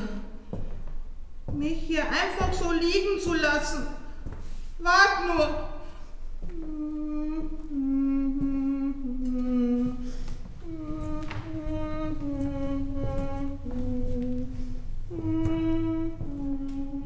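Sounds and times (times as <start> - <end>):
woman humming a melody: 6.4 - 17.0.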